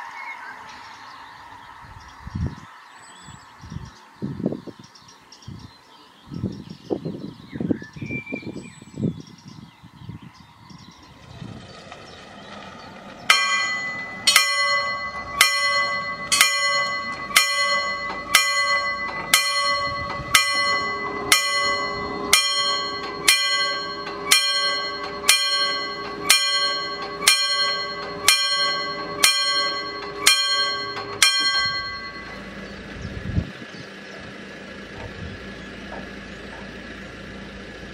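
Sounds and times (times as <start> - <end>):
level crossing warning bell: 13.2 - 33.0.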